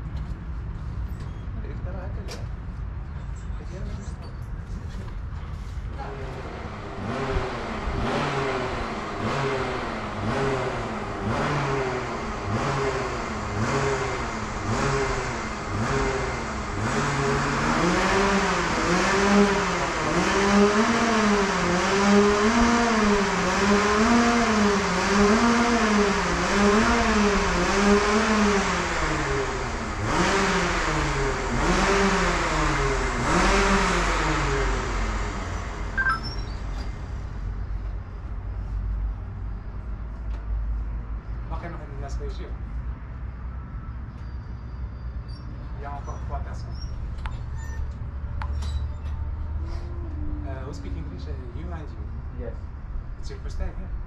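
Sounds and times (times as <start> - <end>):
go-kart engines running: 4.7 - 37.6.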